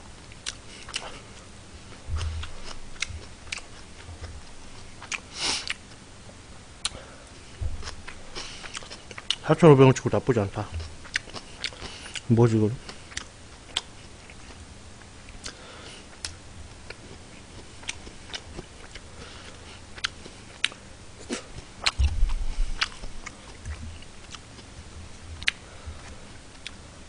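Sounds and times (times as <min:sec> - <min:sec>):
person chewing food: 0:00.2 - 0:09.4, 0:10.6 - 0:26.8
low thump: 0:02.1 - 0:02.5, 0:07.6 - 0:07.8, 0:22.0 - 0:22.8.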